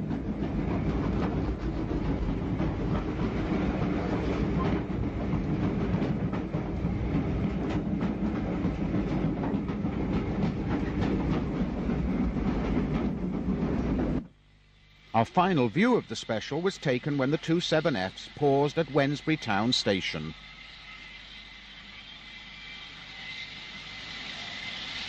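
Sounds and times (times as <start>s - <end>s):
train knocks and clatter: 0.0s - 14.4s
steam train rumble: 0.0s - 25.0s.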